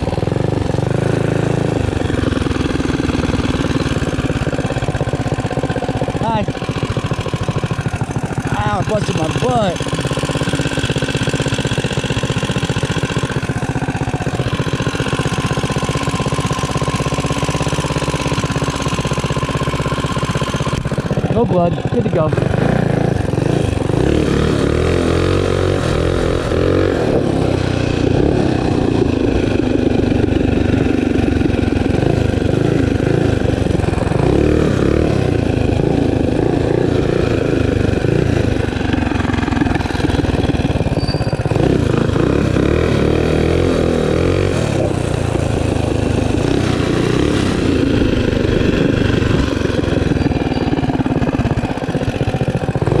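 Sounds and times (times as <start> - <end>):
minibike engine running: 0.0 - 53.0.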